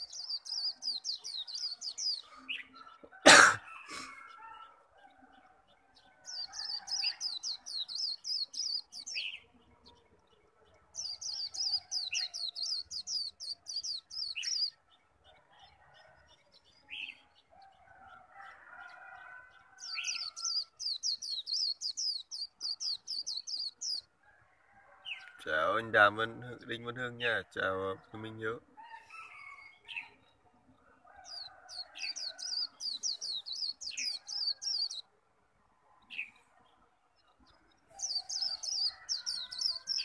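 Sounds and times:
bird singing rapid high song: 0:00.0 - 0:03.0, 0:03.7 - 0:17.5, 0:18.8 - 0:24.1, 0:31.1 - 0:35.1, 0:36.0 - 0:40.0
lower bird chirps: 0:00.0 - 0:17.4, 0:18.3 - 0:35.1, 0:36.0 - 0:40.0.

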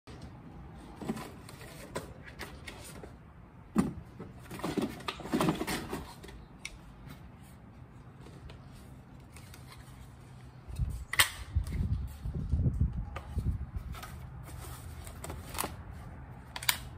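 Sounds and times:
gun handling clicks and knocks: 0:16.5 - 0:16.9.

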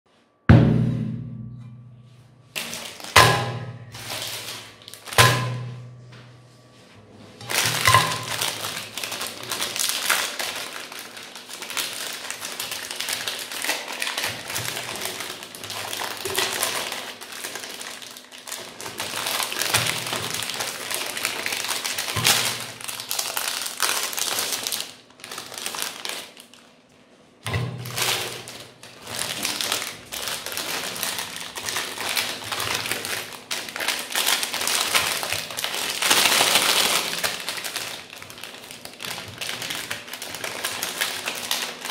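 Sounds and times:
wrappers crinkling and tearing: 0:02.5 - 0:05.6, 0:07.4 - 0:41.9.

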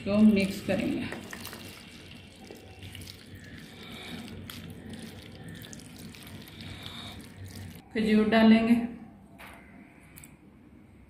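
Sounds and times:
spoon stirring in plastic bowl: 0:00.3 - 0:07.8.

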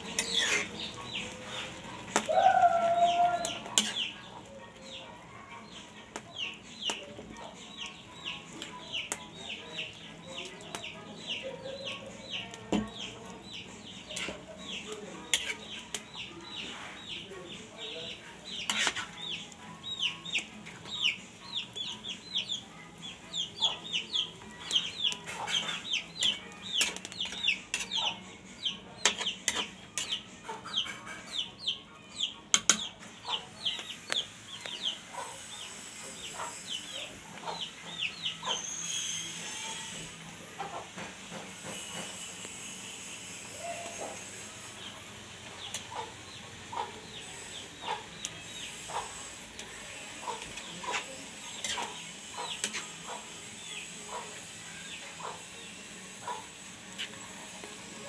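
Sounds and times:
metal spatula scraping pan: 0:00.0 - 0:02.2, 0:03.4 - 0:04.2, 0:14.0 - 0:17.2, 0:18.1 - 0:19.5, 0:24.6 - 0:28.2, 0:29.0 - 0:31.4, 0:47.0 - 0:54.4
chicks peeping: 0:00.1 - 0:15.0, 0:15.6 - 0:40.9, 0:43.8 - 0:49.4, 0:50.2 - 0:56.5.

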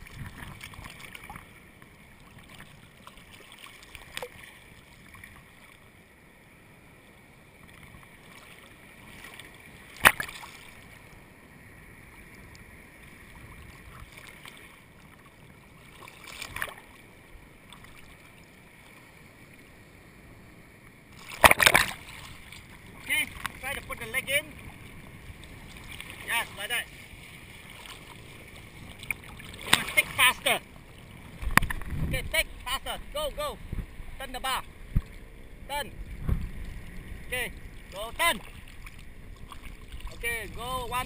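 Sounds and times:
seawater lapping and sloshing: 0:00.0 - 0:06.1, 0:06.7 - 0:19.7, 0:21.0 - 0:41.0
sharp water splashes: 0:08.3 - 0:11.0, 0:15.8 - 0:17.0, 0:21.2 - 0:23.6, 0:27.6 - 0:30.7.

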